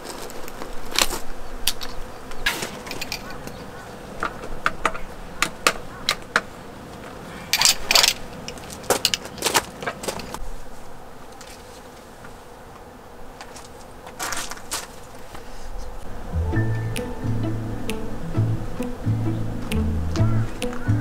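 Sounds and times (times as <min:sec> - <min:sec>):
rustling and scraping: 0:00.0 - 0:03.6, 0:06.9 - 0:12.5, 0:13.3 - 0:16.1
faint steady hum: 0:14.8 - 0:21.0.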